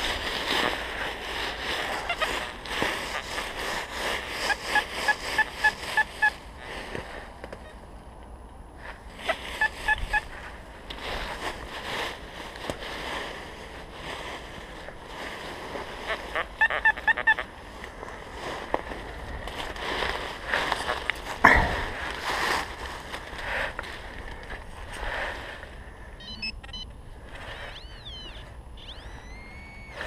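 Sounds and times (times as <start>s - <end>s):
dry leaves rustling: 0.0s - 7.4s, 8.8s - 26.0s
metal detector beeping: 26.2s - 30.0s.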